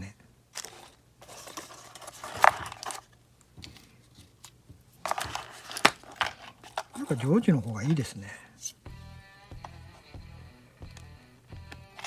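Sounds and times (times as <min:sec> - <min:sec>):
bubble wrap and cardboard rustling: 0:00.5 - 0:08.0.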